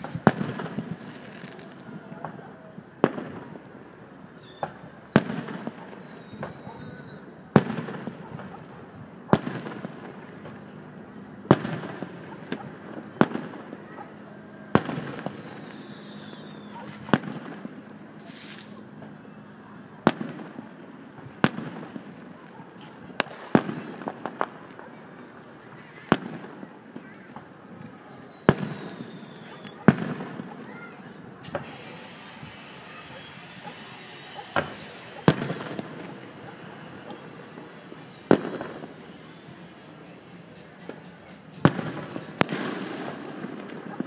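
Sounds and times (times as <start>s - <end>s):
firework hiss: 0.0s - 2.0s, 14.3s - 19.0s, 27.3s - 44.0s
firework shells bursting: 0.0s - 2.4s, 18.2s - 18.8s, 27.3s - 39.4s.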